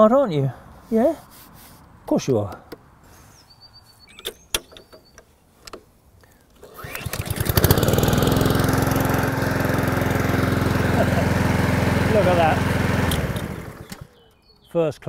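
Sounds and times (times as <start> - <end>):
sharp clicks: 4.1 - 7.4
lawn mower engine running: 6.6 - 14.2
recoil starter pull: 6.6 - 14.2.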